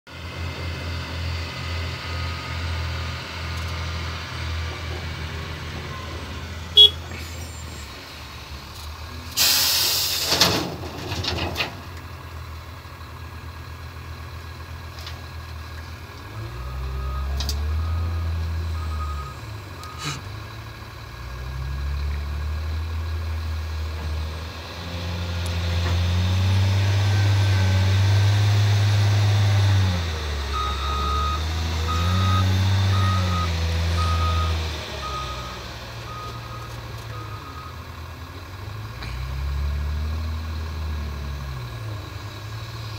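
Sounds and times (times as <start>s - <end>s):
wheel loader diesel engine: 0.1s - 42.9s
backup alarm beeping: 6.8s - 7.0s.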